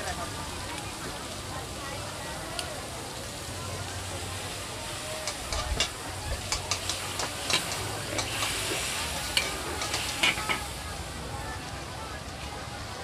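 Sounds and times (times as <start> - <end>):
meat sizzling in a wok: 0.0 - 13.0
metal spatulas scraping a pan: 5.2 - 10.8.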